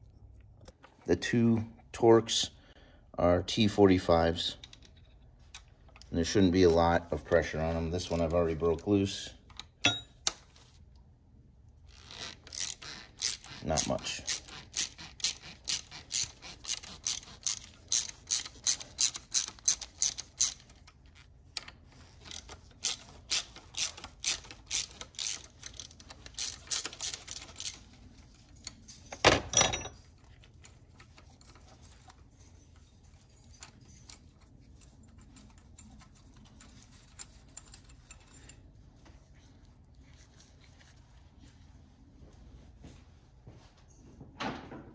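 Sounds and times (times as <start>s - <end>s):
metal clank: 9.8s - 10.2s
socket ratchet clicking: 12.0s - 20.9s, 21.6s - 27.9s
faint handling sounds: 29.9s - 44.2s.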